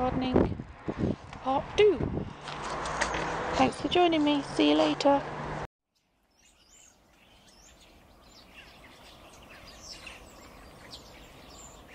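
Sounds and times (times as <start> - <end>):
birds chirping and twittering: 6.0 - 11.9.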